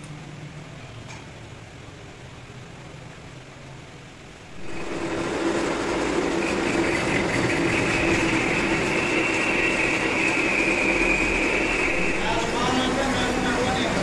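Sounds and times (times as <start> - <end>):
high-pitched whine: 4.5 - 14.0
metal lathe humming: 4.5 - 14.0.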